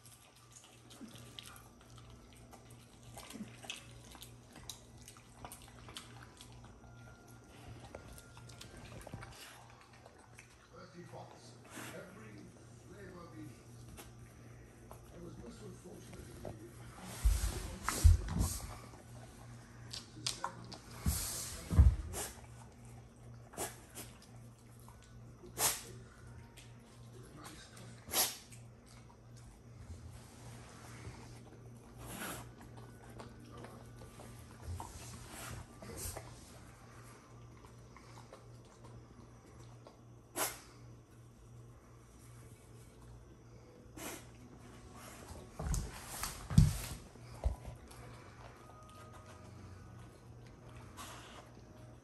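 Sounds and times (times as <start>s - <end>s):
dog chewing and smacking: 0.0s - 7.1s, 7.8s - 12.4s, 31.3s - 36.4s
steady low hum: 0.0s - 52.0s.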